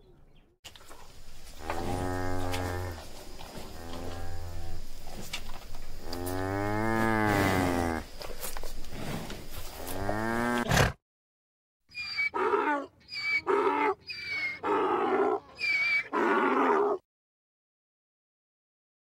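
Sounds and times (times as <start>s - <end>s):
cow mooing: 1.6s - 3.0s, 3.7s - 4.8s, 6.0s - 8.0s, 9.8s - 10.7s, 14.6s - 17.0s
donkey braying: 11.9s - 17.0s.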